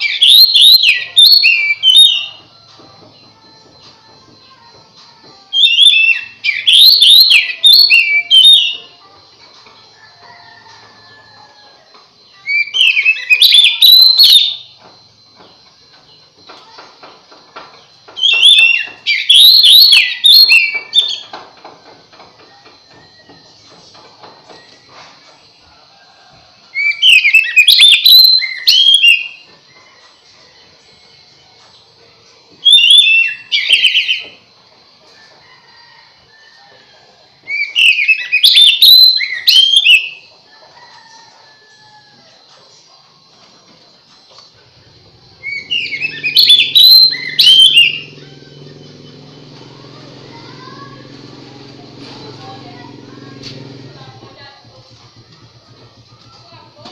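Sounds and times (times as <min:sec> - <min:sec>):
bird singing whistled phrases: 0:00.0 - 0:02.4, 0:05.5 - 0:08.9, 0:12.3 - 0:14.7, 0:18.2 - 0:21.3, 0:26.8 - 0:29.4, 0:32.6 - 0:34.3, 0:37.5 - 0:40.2, 0:45.4 - 0:48.6.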